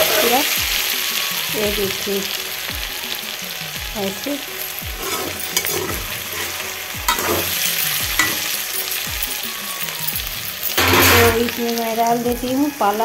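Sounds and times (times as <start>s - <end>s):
vegetables sizzling in oil: 0.0s - 13.0s
metal spatula scraping pan: 4.9s - 9.0s, 10.7s - 11.6s.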